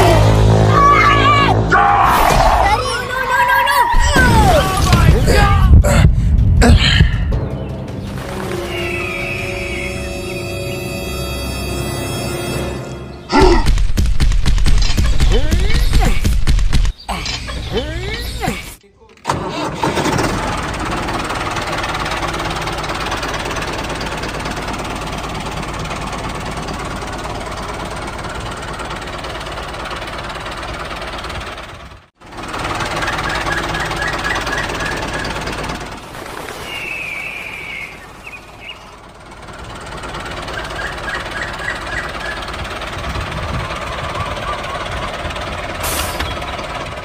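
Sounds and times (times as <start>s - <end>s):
high chirping: 8.5s - 11.1s
tractor engine chugging: 19.3s - 36.2s, 36.9s - 47.0s.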